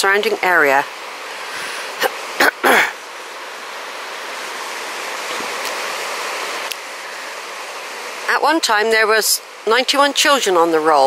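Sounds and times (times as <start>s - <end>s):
river rushing over boulders: 0.0s - 11.0s.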